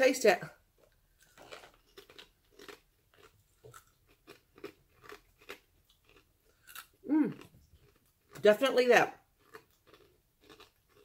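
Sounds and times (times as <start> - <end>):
crunchy crisps being chewed: 1.2 - 8.5, 9.4 - 11.0.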